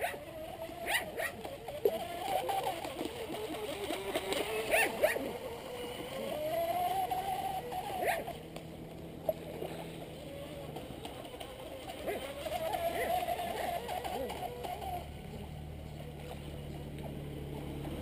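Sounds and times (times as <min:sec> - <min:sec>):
boat hull slapping water: 0:00.0 - 0:18.0
electric motor whine: 0:00.0 - 0:18.0
water splashing: 0:00.0 - 0:18.0.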